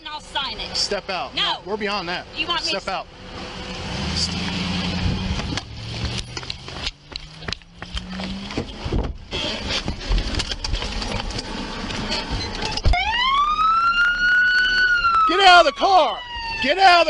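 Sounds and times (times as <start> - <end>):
low engine hum: 2.3 - 13.5
car door knocks and clicks: 8.6 - 9.3.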